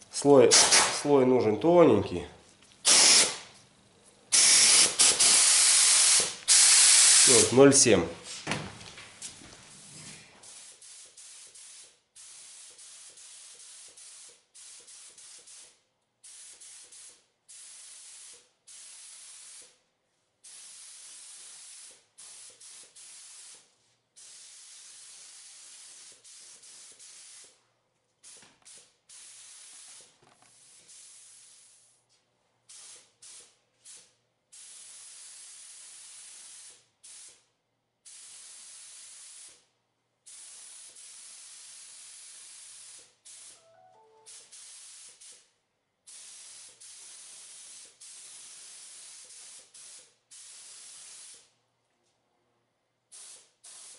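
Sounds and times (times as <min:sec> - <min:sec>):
spray gun hissing in short bursts: 0:02.8 - 0:03.5, 0:04.3 - 0:07.6, 0:10.4 - 0:19.8, 0:20.4 - 0:27.6, 0:28.2 - 0:31.8, 0:32.7 - 0:39.7, 0:40.3 - 0:43.6, 0:44.3 - 0:45.5, 0:46.1 - 0:51.5, 0:53.1 - 0:53.9.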